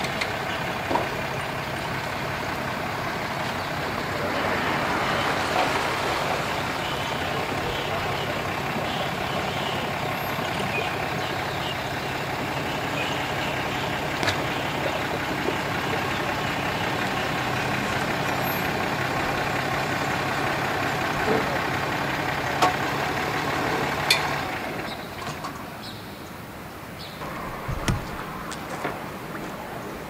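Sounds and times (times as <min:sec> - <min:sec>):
truck engine running: 0:00.0 - 0:25.7, 0:27.2 - 0:30.0
sharp knocks: 0:27.2 - 0:28.8.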